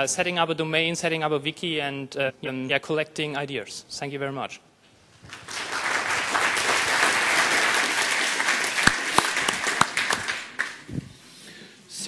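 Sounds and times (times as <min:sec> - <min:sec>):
audience applauding: 0:05.2 - 0:10.9.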